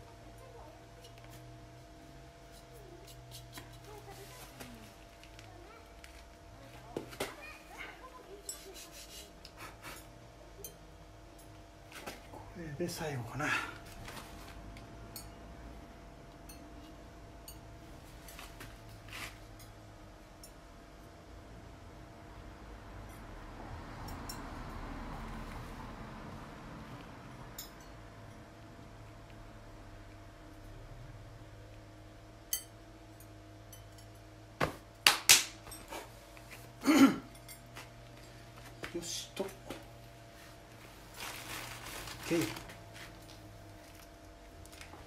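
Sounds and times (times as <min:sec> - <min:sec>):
faint steady hum: 0:00.0 - 0:45.0
ringing ceramic clink: 0:32.5 - 0:34.2.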